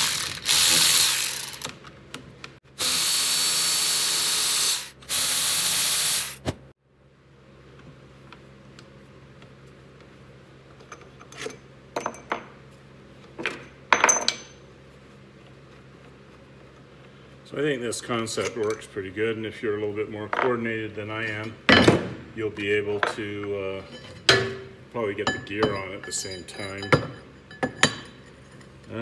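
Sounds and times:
electric ratchet running: 0.0s - 1.7s, 2.8s - 6.4s.

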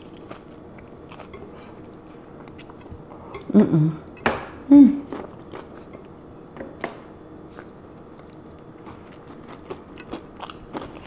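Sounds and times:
crunchy chewing: 0.0s - 3.4s, 7.5s - 11.0s.

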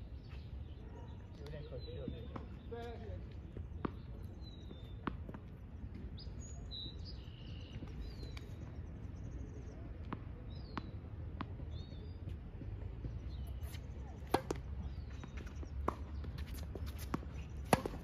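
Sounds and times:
small birds chirping: 0.0s - 18.0s
tennis ball bouncing on court: 3.5s - 5.6s, 10.0s - 18.0s.

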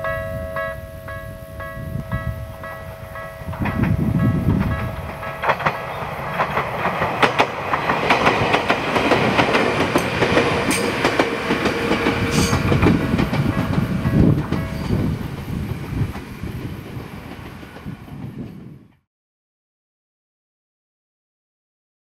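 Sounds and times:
crossing warning bell: 0.0s - 15.2s
train wheels clacking: 1.6s - 18.7s.

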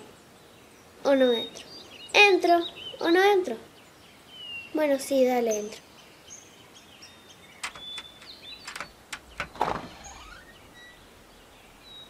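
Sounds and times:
birds chirping faintly: 0.0s - 12.0s
door clicks and knocks: 7.6s - 10.9s
door creaking open: 7.6s - 11.2s.

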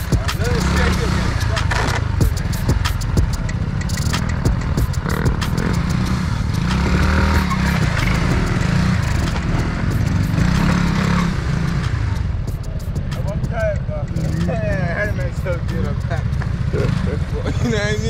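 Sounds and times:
scooter engine revving: 0.0s - 18.0s.

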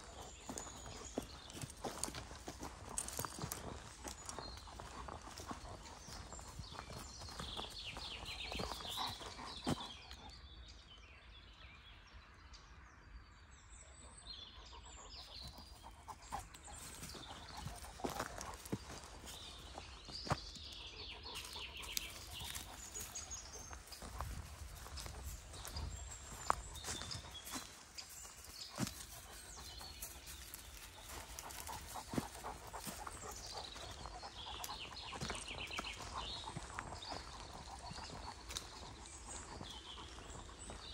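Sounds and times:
footsteps crunching on dry leaves: 0.0s - 7.8s, 16.8s - 20.5s, 21.4s - 40.8s
birds chirping: 0.0s - 10.8s, 14.1s - 40.9s.

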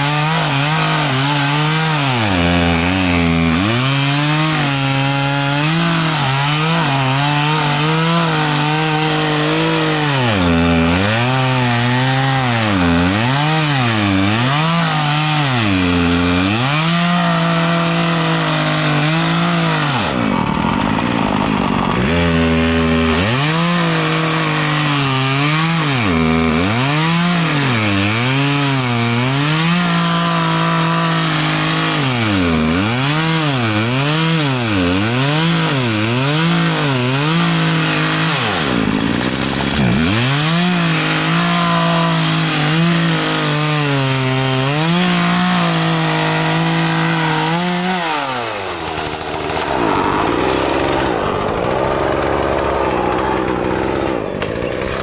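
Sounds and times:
chainsaw cutting log: 0.0s - 55.0s.

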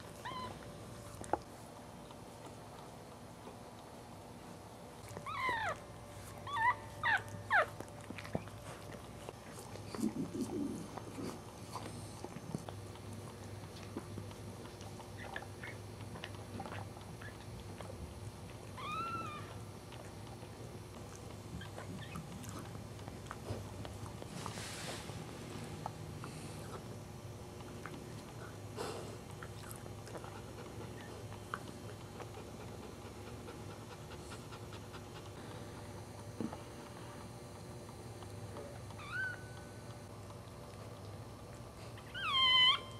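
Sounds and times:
dog licking puppy: 0.0s - 42.8s
steady low hum: 0.0s - 42.9s
puppy squealing: 6.4s - 7.7s, 18.8s - 19.6s, 39.0s - 39.7s, 42.0s - 42.9s
dog panting: 27.8s - 37.6s.

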